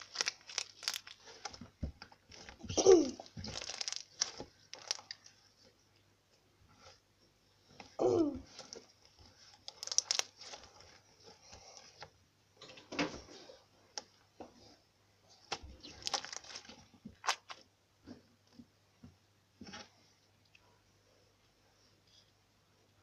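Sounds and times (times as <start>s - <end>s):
slime crackling and tearing: 0.0s - 1.6s, 2.3s - 5.3s, 9.5s - 11.0s, 15.5s - 17.6s.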